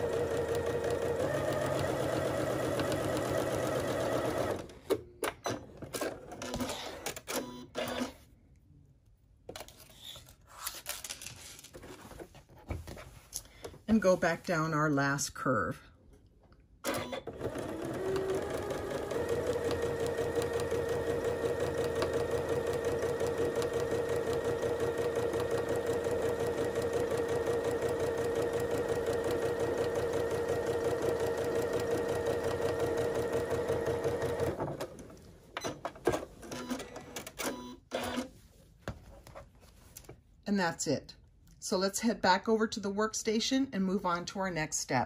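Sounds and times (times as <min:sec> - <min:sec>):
sewing machine stitching: 0:00.0 - 0:08.2, 0:16.9 - 0:35.0.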